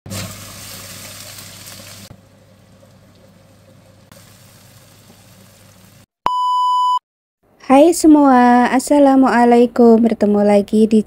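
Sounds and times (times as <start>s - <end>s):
chicken frying while stirred: 0.1s - 6.1s
chili paste sizzling in hot oil: 0.1s - 6.1s.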